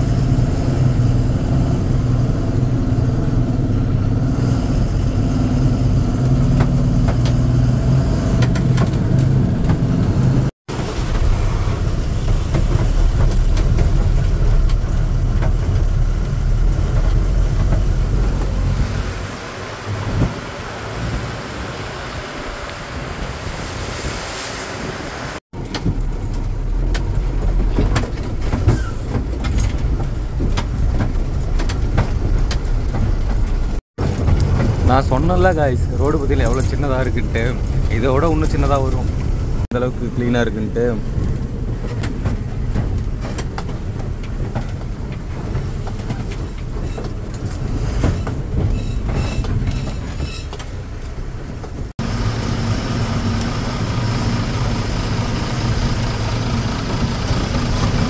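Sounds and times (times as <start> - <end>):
road noise: 0.0 - 58.0
lorry engine running: 25.6 - 58.0.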